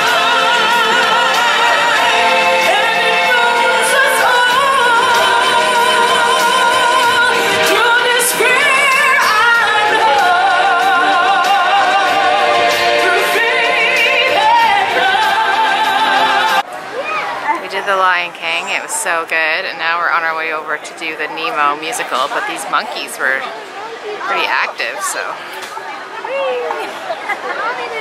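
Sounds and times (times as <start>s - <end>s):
full musical backing: 0.0s - 16.7s
stage-show singing with vibrato: 0.0s - 16.7s.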